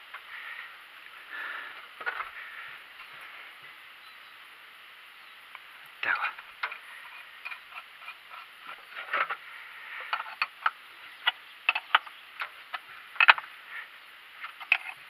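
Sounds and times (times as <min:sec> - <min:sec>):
spanner clicking on metal nut: 0:06.6 - 0:08.8, 0:10.1 - 0:13.4.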